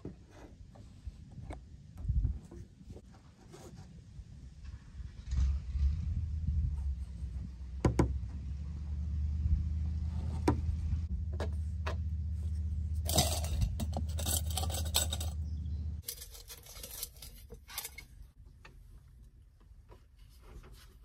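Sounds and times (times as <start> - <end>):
wind rumble on microphone: 0.8 - 3.0, 4.0 - 8.6.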